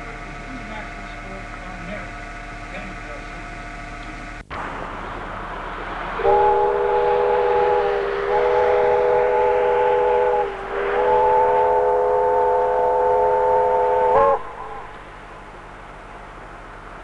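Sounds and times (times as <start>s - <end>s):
steam locomotive chime whistle: 6.1s - 14.9s.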